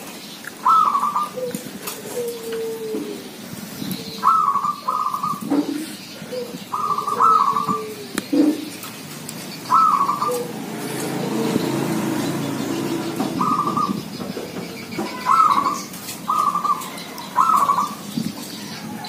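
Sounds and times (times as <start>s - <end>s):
doves cooing: 0.5s - 19.0s
high trilled dove phrases: 4.1s - 5.4s, 6.3s - 8.6s, 9.7s - 10.6s, 14.9s - 18.0s.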